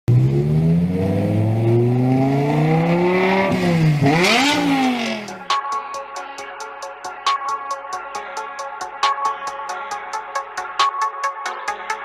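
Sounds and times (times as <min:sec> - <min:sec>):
car engine accelerating: 0:00.1 - 0:05.5
electronic music with a beat: 0:03.1 - 0:12.0.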